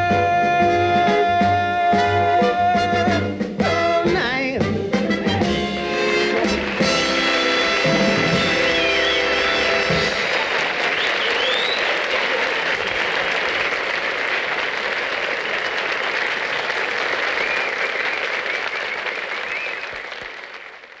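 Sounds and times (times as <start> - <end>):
audience applauding: 5.1 - 21.0.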